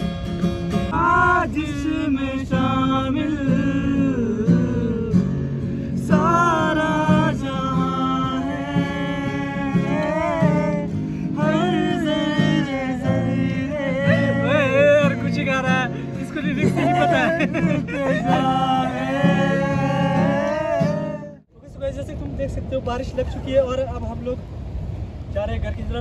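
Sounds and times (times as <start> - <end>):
guitar accompaniment: 0.0 - 21.5
person singing: 6.1 - 21.4.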